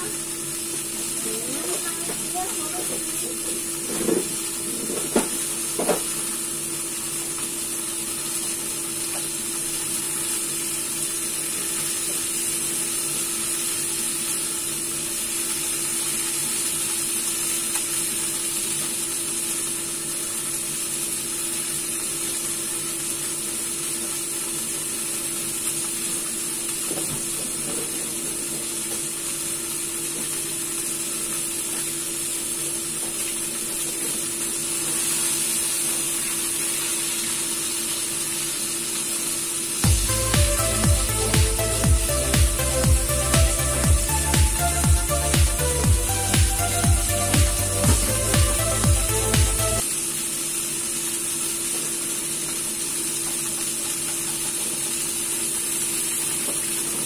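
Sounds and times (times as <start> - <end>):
chicken sizzling in oil: 0.0 - 57.0.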